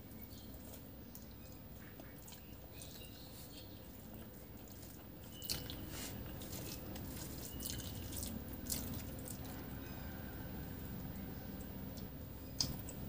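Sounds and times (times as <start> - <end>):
fingers squishing wet rice: 0.0 - 9.5
sharp wet smacks: 12.0 - 13.0.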